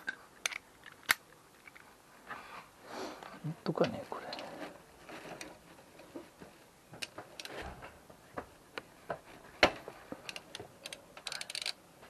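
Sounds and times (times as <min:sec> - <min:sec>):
metal hand tools clicking: 0:10.3 - 0:11.8.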